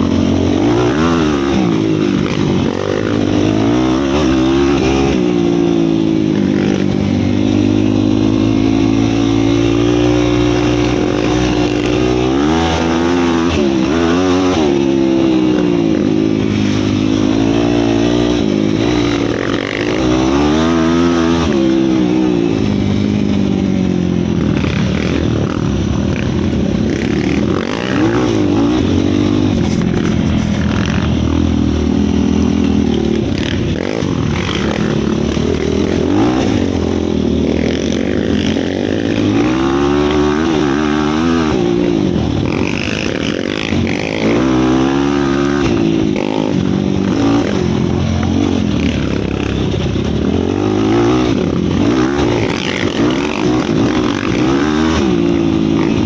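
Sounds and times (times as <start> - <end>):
quad bike engine revving: 0.0 - 56.0.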